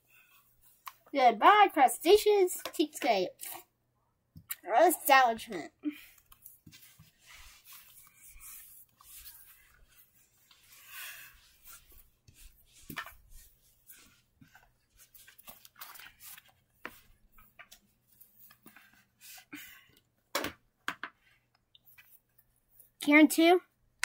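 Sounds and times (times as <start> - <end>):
soft rustling: 6.0 - 19.6.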